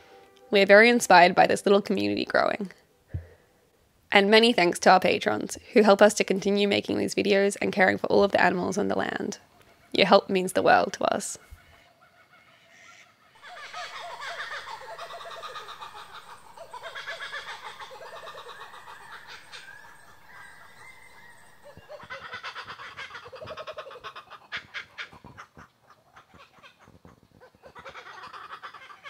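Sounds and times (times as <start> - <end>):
birds chattering chorus: 9.9 - 28.7.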